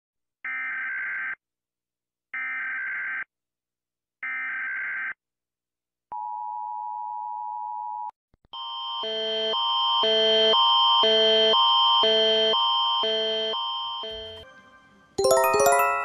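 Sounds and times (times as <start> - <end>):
two-tone attention signal: 13.0 - 14.4.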